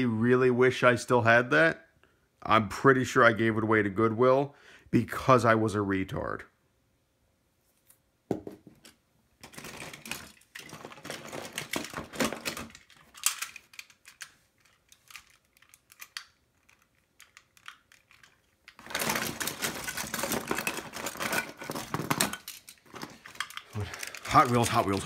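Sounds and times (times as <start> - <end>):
plastic toy parts rattling: 8.8 - 25.0.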